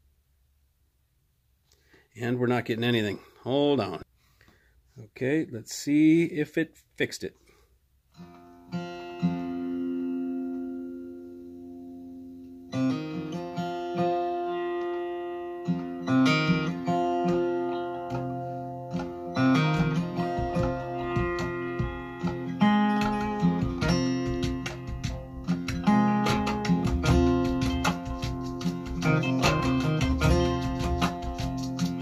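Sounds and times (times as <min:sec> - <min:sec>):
acoustic guitar music: 0:08.1 - 0:32.0.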